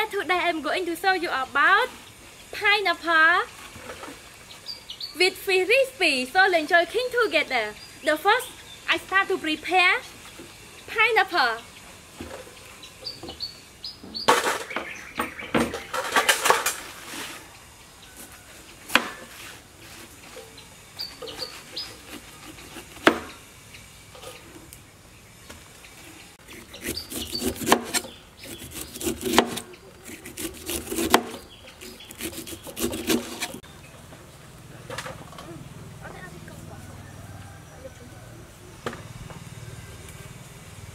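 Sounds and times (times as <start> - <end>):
bird chirps: 12.6 - 16.0, 20.5 - 22.0
rustling of pineapple leaves: 15.8 - 23.1, 26.1 - 33.6
knife cutting on wooden board: 26.4 - 33.6.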